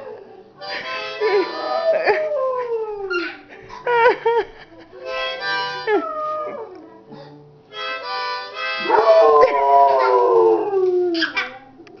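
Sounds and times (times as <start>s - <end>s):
harmonica chords: 0.6s - 1.9s, 5.0s - 6.2s, 7.7s - 9.2s
dog howling: 8.8s - 11.4s.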